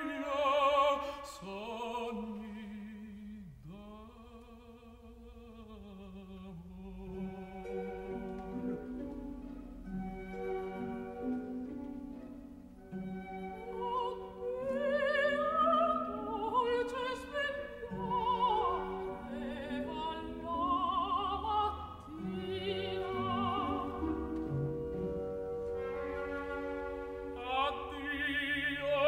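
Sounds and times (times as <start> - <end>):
operatic singing: 0.0 - 9.0, 13.0 - 24.5, 27.2 - 29.0
orchestral accompaniment: 7.1 - 29.0.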